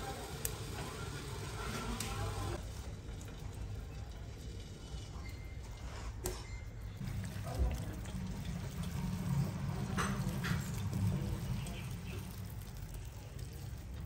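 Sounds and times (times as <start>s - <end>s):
water pouring into a bowl: 7.0s - 14.0s.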